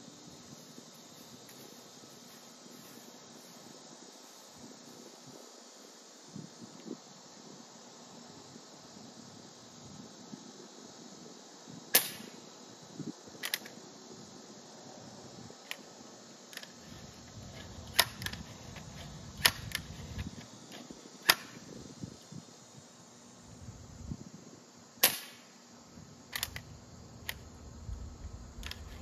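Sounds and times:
air rifle firing crack: 0:12.0 - 0:12.4, 0:25.0 - 0:25.4
metallic clicks of rifle cocking: 0:13.4 - 0:13.8, 0:17.9 - 0:20.3, 0:26.3 - 0:27.4.

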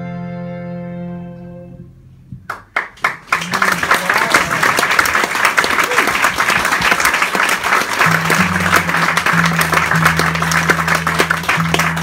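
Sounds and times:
audience applauding: 0:02.5 - 0:12.0.

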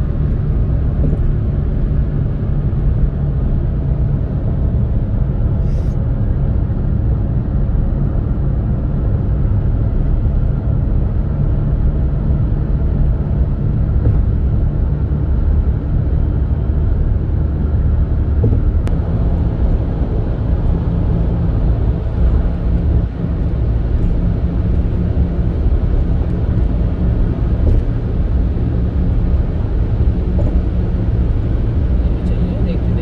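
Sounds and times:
car driving at speed rumble: 0:00.0 - 0:33.0.

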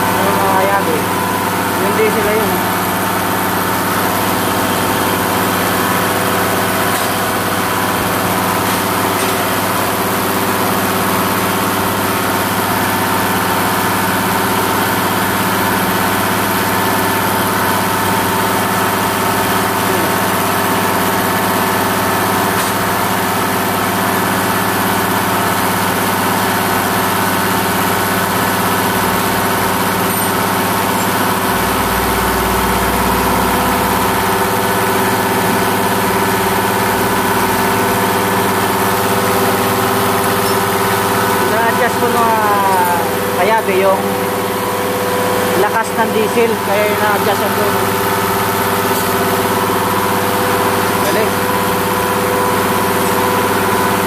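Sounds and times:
test bench machine running: 0:00.0 - 0:54.0
deep hum: 0:30.4 - 0:37.1.

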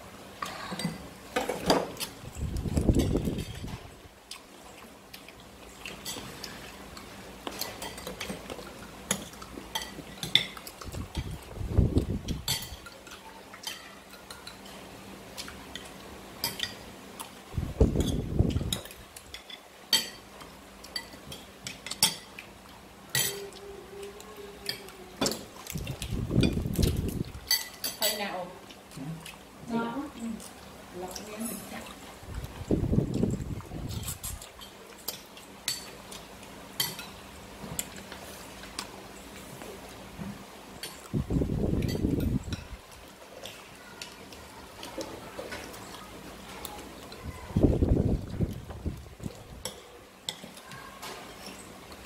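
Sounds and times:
spoons clinking on ceramic bowls: 0:27.5 - 0:28.2.

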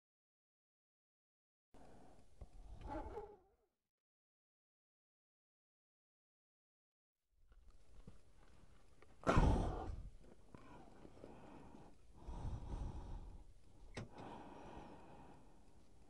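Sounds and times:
person sighing: 0:09.2 - 0:10.1
person breathing heavily: 0:09.2 - 0:15.9.

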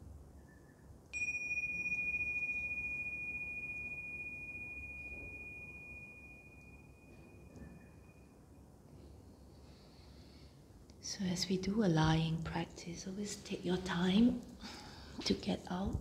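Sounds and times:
cymbals ringing: 0:01.2 - 0:08.6.

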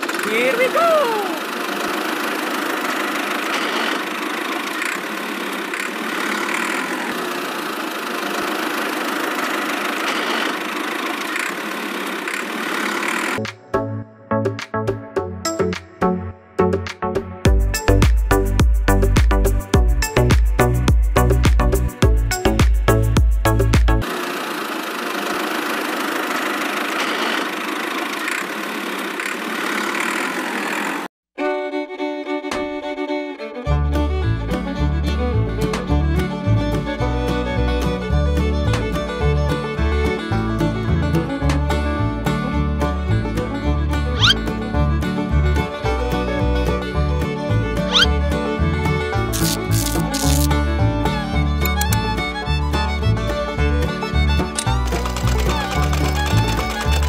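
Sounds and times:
small electric motor whirring: 0:00.0 - 0:13.4, 0:24.0 - 0:31.1, 0:44.2 - 0:44.4, 0:47.9 - 0:48.1, 0:49.3 - 0:50.6, 0:51.6 - 0:52.3, 0:54.4 - 0:57.0
small tractor engine running: 0:00.0 - 0:13.4, 0:18.9 - 0:31.1, 0:33.7 - 0:57.0.

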